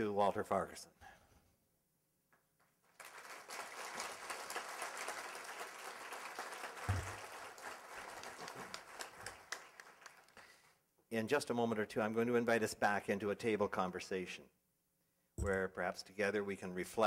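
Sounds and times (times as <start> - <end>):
audience applauding: 2.9 - 10.4
low thump: 6.9 - 7.2.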